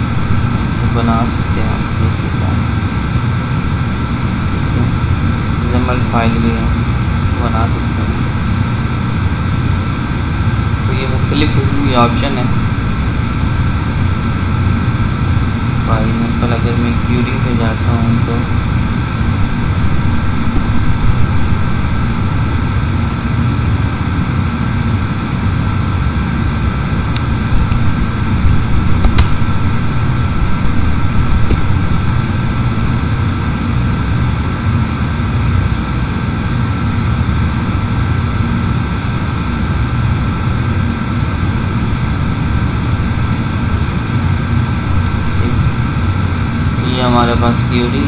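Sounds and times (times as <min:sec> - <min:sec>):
machine hum and hiss: 0:00.0 - 0:48.0
sharp clicks: 0:29.0 - 0:29.4.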